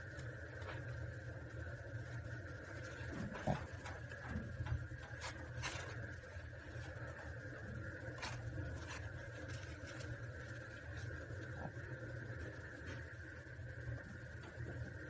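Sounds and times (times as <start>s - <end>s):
sharp crackles of burning hair: 0.0s - 14.0s
steady low hum: 0.0s - 15.0s.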